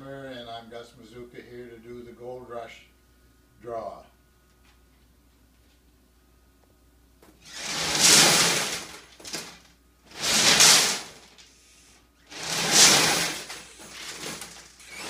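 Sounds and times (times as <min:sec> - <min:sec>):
balls rattling in a turning drum: 0:07.4 - 0:11.6, 0:12.3 - 0:15.0.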